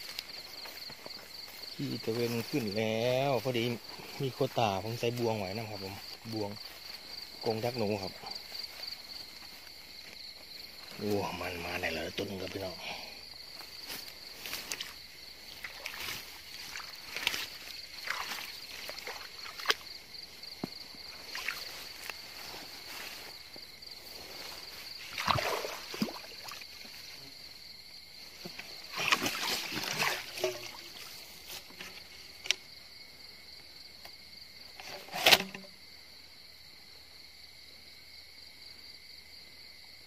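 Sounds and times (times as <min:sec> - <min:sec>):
footsteps through wet grass: 0:00.0 - 0:12.7, 0:13.3 - 0:27.4, 0:28.4 - 0:32.4
night insects trilling: 0:00.0 - 0:40.0.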